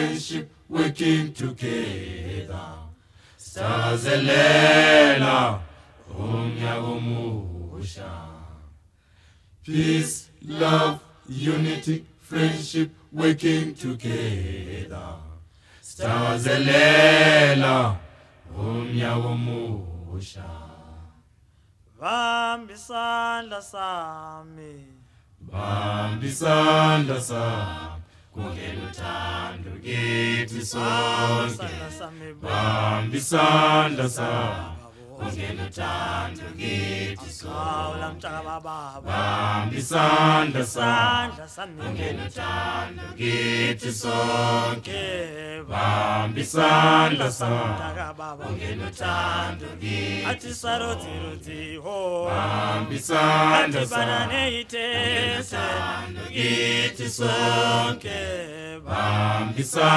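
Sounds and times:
group of voices singing: 0.0s - 8.7s, 9.6s - 21.2s, 22.0s - 59.9s.

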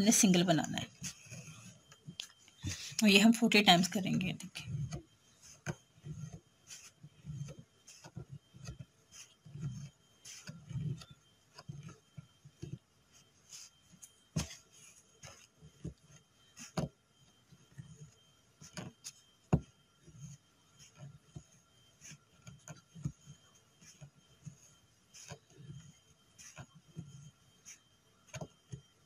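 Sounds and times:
soft rubbing thuds of thread: 4.6s - 28.9s.

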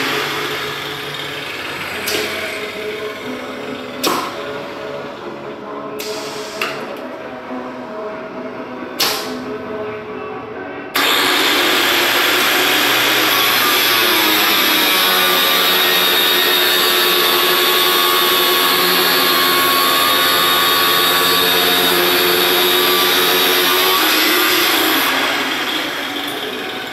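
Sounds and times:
sharp pneumatic clacks: 0.0s - 2.7s, 4.0s - 4.6s, 6.0s - 7.0s, 9.0s - 9.5s
angle grinder cutting metal tube: 0.0s - 5.2s, 11.0s - 26.9s
motor hum: 0.0s - 5.4s, 11.0s - 26.9s.

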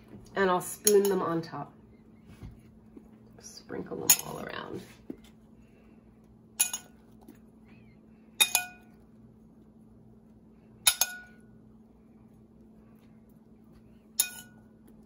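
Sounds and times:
metal spoon clinking china bowl: 6.6s - 7.0s, 8.4s - 9.0s, 10.8s - 11.4s, 14.2s - 14.7s.

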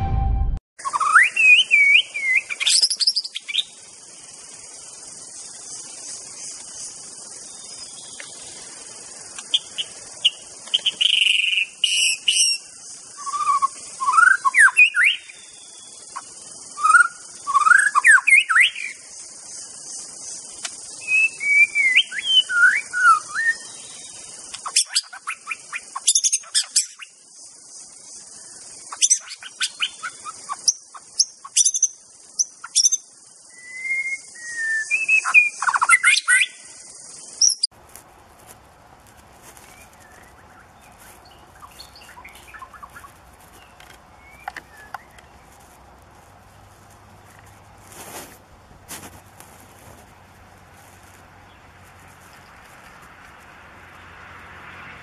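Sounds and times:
bird singing whistled phrases: 0.8s - 3.7s, 13.2s - 15.4s, 16.8s - 19.0s, 21.0s - 24.1s, 32.6s - 36.6s
steady high hiss: 0.9s - 54.8s.

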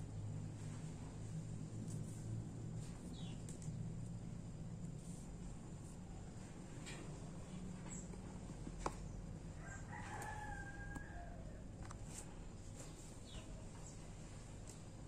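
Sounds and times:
rooster crowing faintly: 9.4s - 12.4s.

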